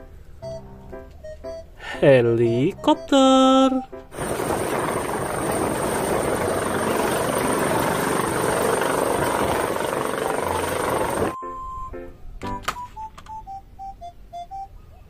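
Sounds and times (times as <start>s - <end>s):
helicopter rotor and turbine noise: 4.2s - 11.4s.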